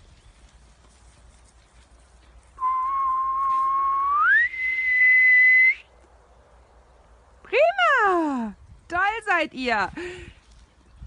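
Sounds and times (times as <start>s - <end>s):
long whistle: 2.6s - 5.9s.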